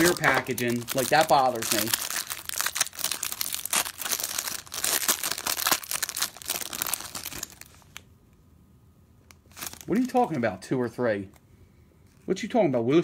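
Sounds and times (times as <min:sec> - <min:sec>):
plastic wrapper crinkling and tearing: 0:00.0 - 0:08.1, 0:09.2 - 0:10.4.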